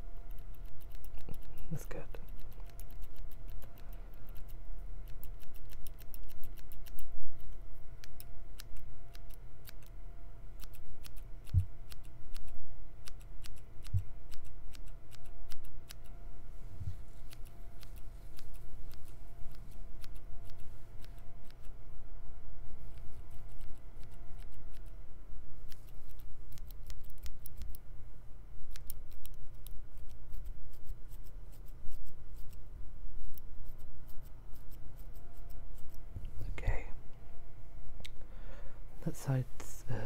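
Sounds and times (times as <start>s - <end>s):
scissors snipping: 0.3s - 1.6s, 2.3s - 9.9s, 17.2s - 21.7s, 25.7s - 27.8s.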